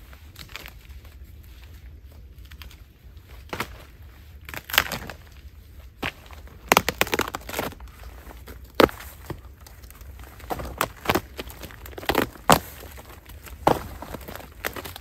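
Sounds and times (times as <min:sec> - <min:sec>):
rotten wood crunching and cracking: 0:00.0 - 0:15.0.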